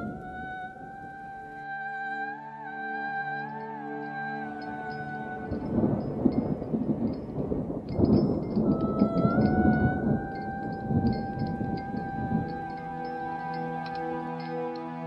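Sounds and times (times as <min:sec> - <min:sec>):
soft sustained music tones: 0:00.0 - 0:15.0
deep crackling rumble: 0:05.4 - 0:13.0.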